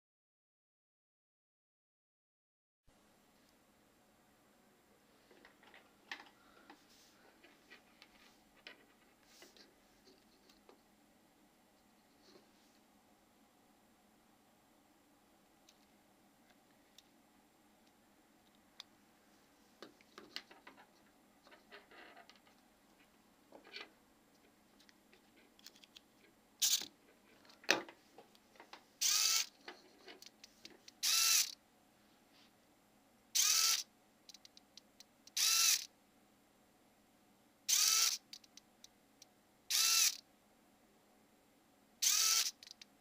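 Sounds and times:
servo motor whining: 29.0s - 29.5s, 33.4s - 33.8s, 42.0s - 42.6s.

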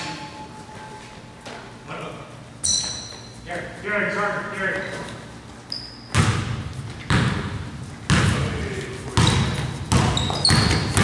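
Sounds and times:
sneaker squeaks: 2.6s - 3.5s, 4.8s - 7.4s, 9.2s - 11.0s
basketball bouncing on gym floor: 6.0s - 11.0s.

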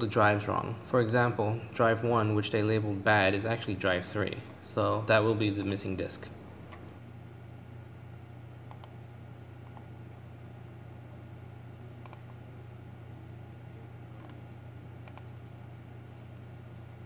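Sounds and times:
steady low hum: 0.0s - 17.0s
computer mouse buttons clicking: 8.7s - 9.0s, 12.0s - 12.4s, 14.2s - 14.4s, 15.0s - 15.4s.

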